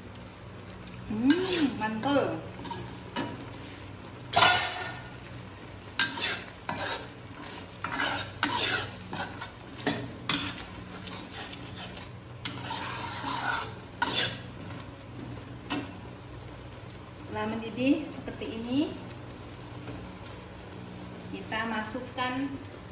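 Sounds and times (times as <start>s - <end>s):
sauce bubbling and sizzling: 0.0s - 22.9s
metal spatula scraping wok: 1.1s - 5.2s, 5.9s - 14.6s.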